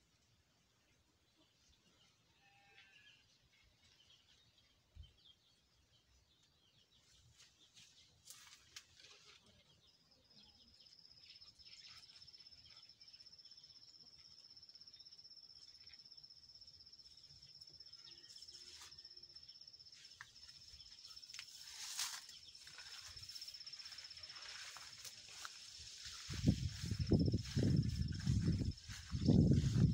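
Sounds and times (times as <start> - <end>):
faint chirps: 7.1 - 29.9.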